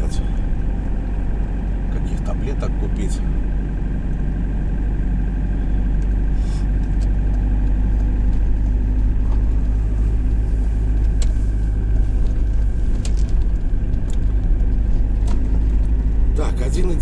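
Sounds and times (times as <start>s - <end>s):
truck engine and road rumble: 0.0s - 17.0s.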